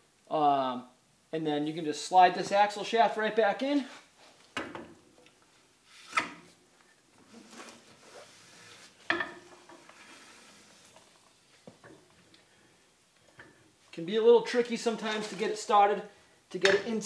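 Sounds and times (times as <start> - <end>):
metal scraping: 7.3 - 11.1, 14.8 - 15.7.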